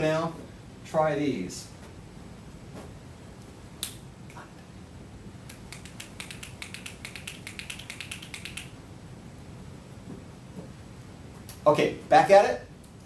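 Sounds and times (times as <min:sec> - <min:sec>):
rapid light clicks: 0:05.5 - 0:08.8.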